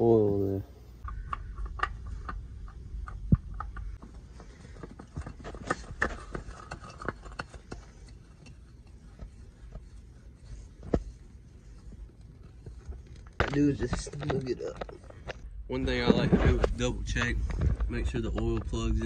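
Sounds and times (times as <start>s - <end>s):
oil filter clicking and knocking: 1.0s - 10.0s.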